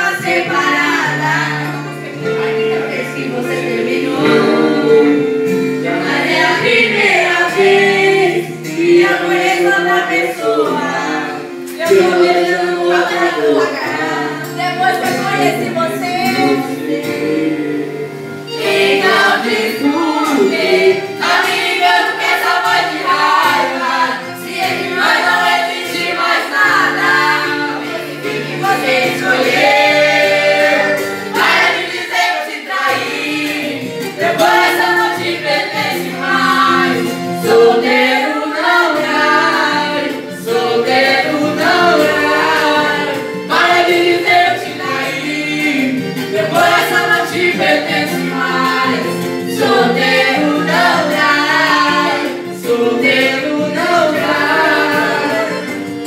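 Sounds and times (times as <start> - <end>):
backing music through loudspeaker: 0.0 - 56.0
man singing into microphone: 1.8 - 6.0, 7.3 - 14.5, 15.2 - 18.2, 19.0 - 21.1.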